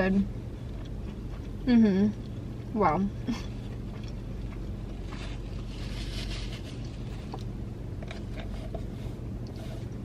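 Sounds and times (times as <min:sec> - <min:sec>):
low car cabin hum: 0:00.0 - 0:10.0
chewing crunchy food: 0:00.5 - 0:01.6, 0:03.6 - 0:10.0.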